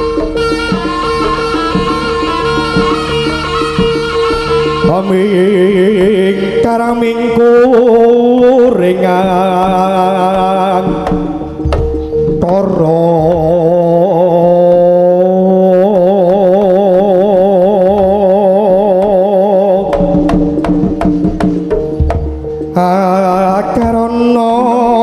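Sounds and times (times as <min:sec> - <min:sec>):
sharp drum strokes: 0:00.0 - 0:06.6, 0:19.8 - 0:24.2
wavering sustained gamelan melody: 0:00.0 - 0:15.0, 0:19.8 - 0:25.0.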